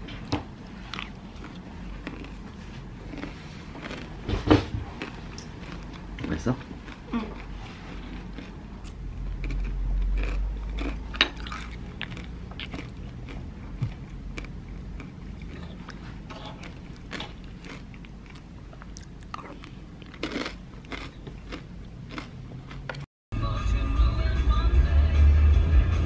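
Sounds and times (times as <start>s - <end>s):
granola crunching: 0.9s - 23.0s
low rumble: 23.4s - 26.0s.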